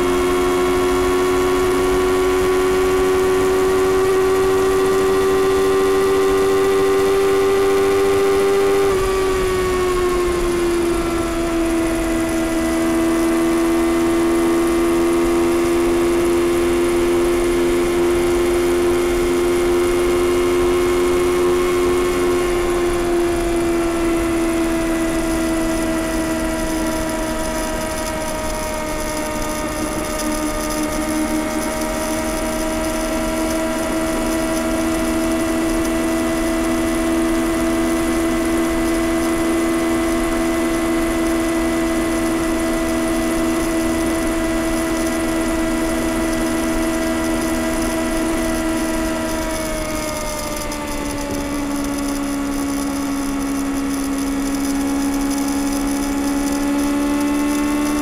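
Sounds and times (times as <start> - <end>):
motorcycle engine cruising: 0.0 - 58.0.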